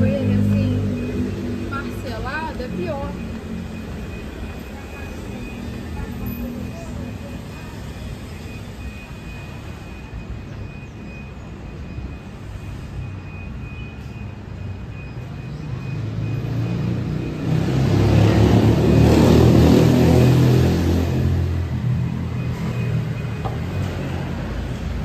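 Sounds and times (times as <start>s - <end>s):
city street traffic: 0.0s - 25.0s
vehicle engine passing: 15.7s - 25.0s.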